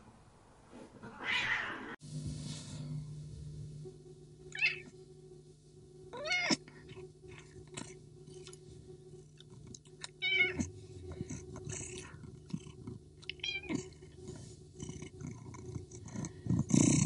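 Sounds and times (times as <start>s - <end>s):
steady low hum: 0.0s - 17.0s
cat meowing: 1.0s - 2.0s, 4.6s - 4.9s, 6.2s - 6.6s, 10.2s - 10.6s, 13.4s - 13.8s.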